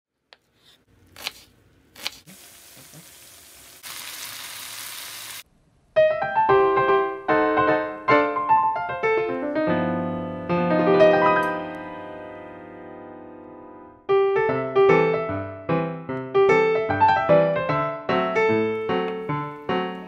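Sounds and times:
steady hiss: 2.3s - 5.4s
solo piano music: 6.0s - 20.0s.

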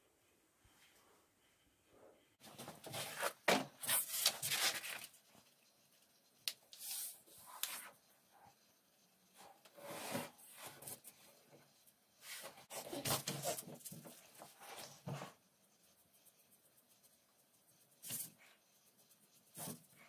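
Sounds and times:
paper rustling and rubbing: 2.4s - 8.0s.

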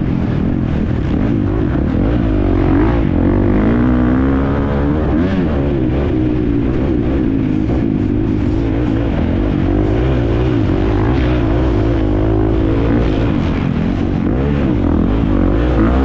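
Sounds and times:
motocross engine revving: 0.4s - 16.0s.

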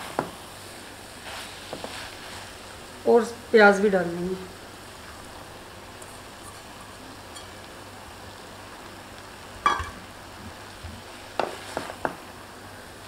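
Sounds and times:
vegetables sizzling in pot: 0.0s - 13.0s
metal pot clank: 6.0s - 7.6s, 9.6s - 10.0s
spatula knocking against pot: 9.6s - 10.0s.

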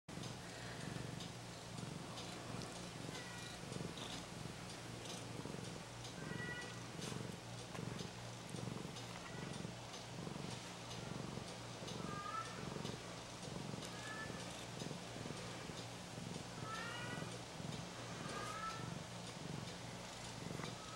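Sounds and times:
cat purring: 0.1s - 20.9s.

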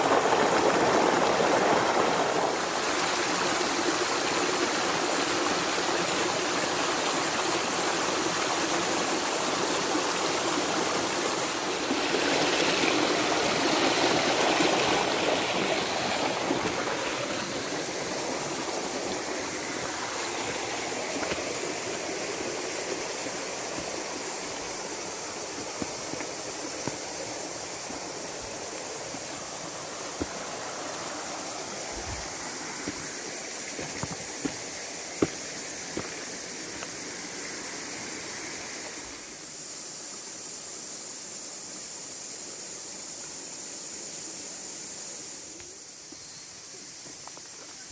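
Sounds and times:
stream running over stones: 0.0s - 47.9s.

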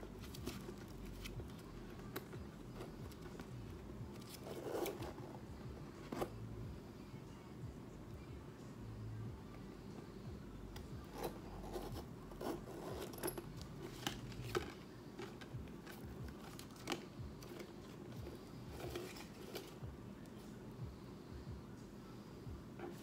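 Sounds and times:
bag hardware clicking: 12.4s - 17.6s.

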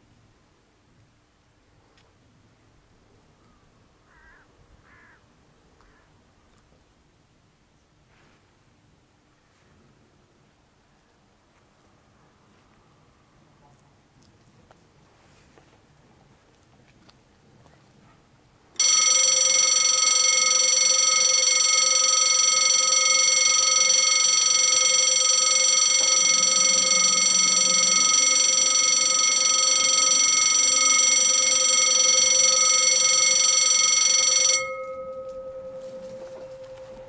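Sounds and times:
level crossing warning bell ringing: 18.8s - 37.0s.

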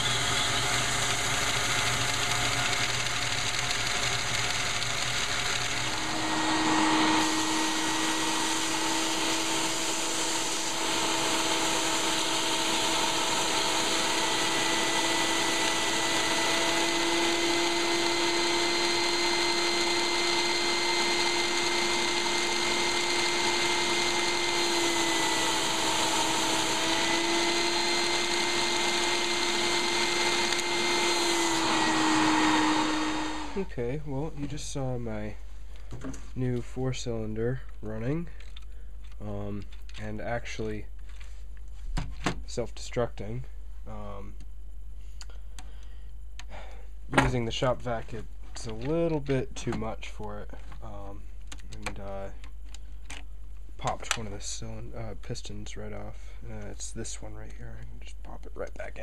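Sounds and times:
shop vacuum whining: 0.0s - 36.3s.

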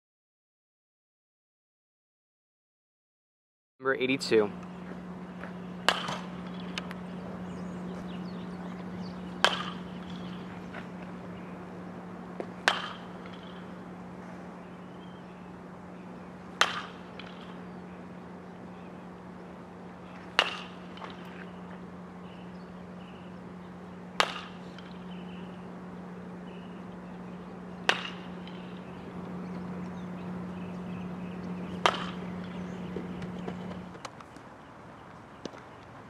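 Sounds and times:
steady low hum: 3.8s - 36.0s
bat cracking ball: 4.6s - 7.2s, 8.5s - 14.5s, 16.1s - 17.8s, 19.8s - 21.9s, 23.5s - 34.2s.

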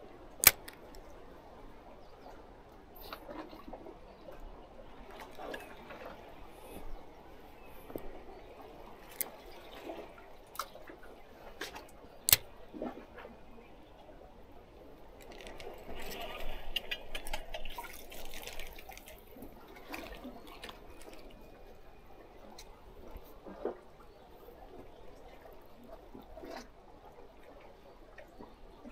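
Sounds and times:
seawater sloshing and gurgling: 0.0s - 28.9s
sharp clicks: 0.4s - 1.0s.

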